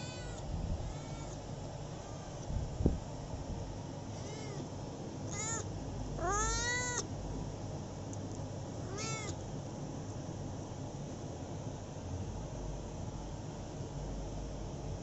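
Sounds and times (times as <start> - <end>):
cat meowing: 0.0 - 1.4, 2.0 - 2.4, 4.1 - 4.7, 5.3 - 7.1, 8.8 - 9.4.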